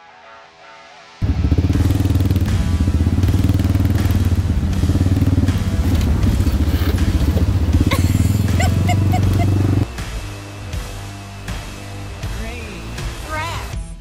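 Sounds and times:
off-road vehicle engine running: 1.2s - 13.6s
guitar music: 1.3s - 13.8s
knocks and rattles: 5.2s - 8.6s.

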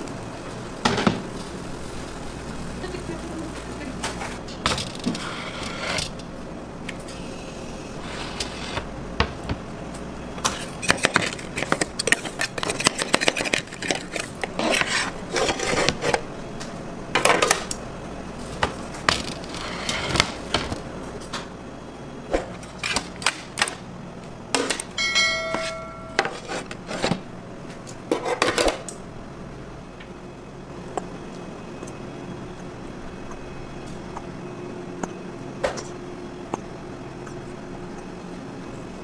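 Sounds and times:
brief steady tone: 25.0s - 26.3s.

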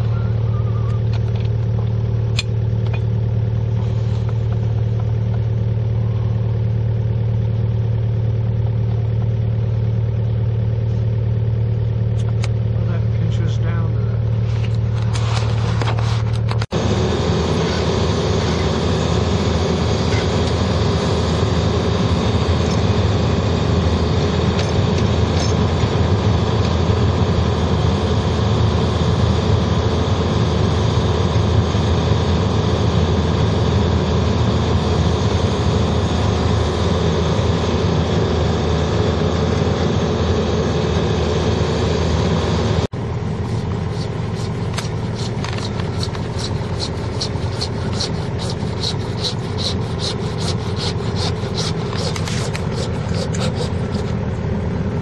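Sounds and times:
diesel engine running: 0.0s - 55.0s
scraping and clicking: 14.4s - 16.7s, 43.4s - 54.2s.

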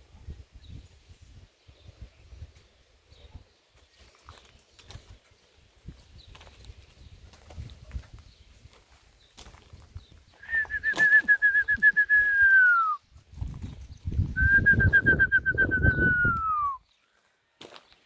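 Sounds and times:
loud trilled whistles: 10.4s - 13.0s, 14.3s - 16.8s.

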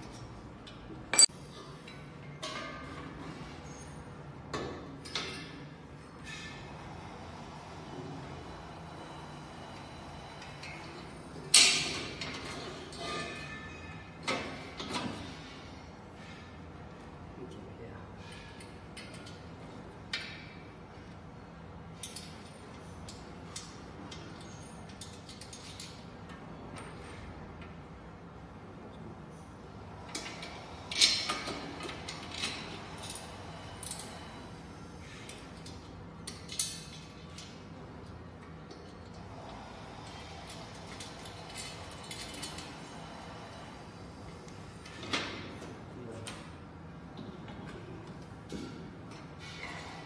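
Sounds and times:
metal clicks of bolts and nuts: 18.3s - 19.4s, 22.0s - 27.7s, 35.2s - 37.6s.

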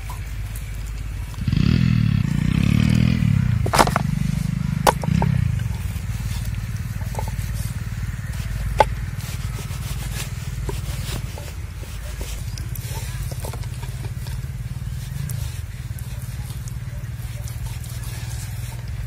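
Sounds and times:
low motor drone: 0.0s - 19.0s
blade knocking on wooden board: 3.6s - 4.1s, 4.8s - 5.4s.

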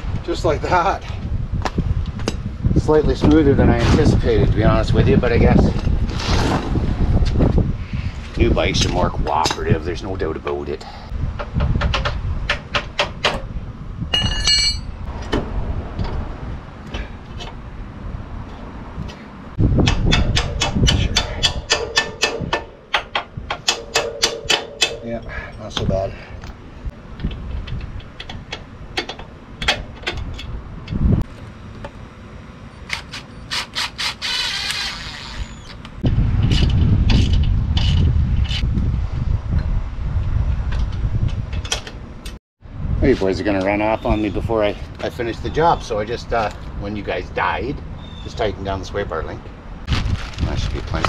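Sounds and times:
metal piece ringing: 14.1s - 15.0s, 23.6s - 25.3s
metal tools clicking and clinking: 14.1s - 15.0s
metal tools clicking and knocking: 19.8s - 25.1s.

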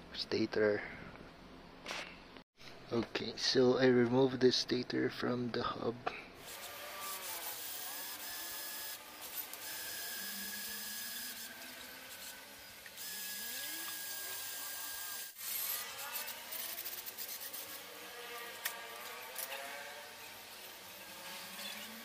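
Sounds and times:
cordless drill boring metal: 6.4s - 18.0s.

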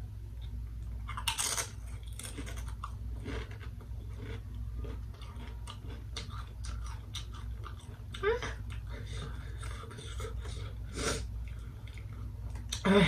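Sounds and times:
low steady hum: 0.0s - 13.0s
person crunching tortilla chip: 1.0s - 7.8s.

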